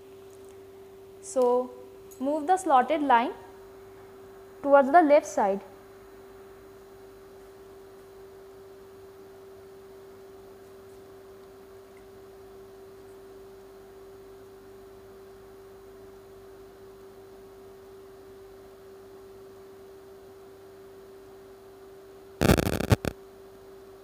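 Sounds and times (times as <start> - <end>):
steady electronic hum tone: 22.4 - 23.1.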